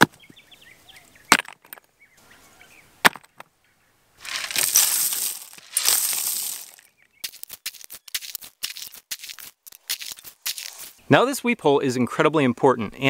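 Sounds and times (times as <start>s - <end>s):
gravel poured into a hole: 4.2s - 11.0s.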